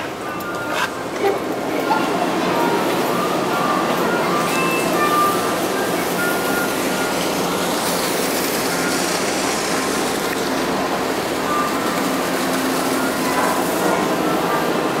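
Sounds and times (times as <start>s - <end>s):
ferry machinery humming: 0.0s - 15.0s.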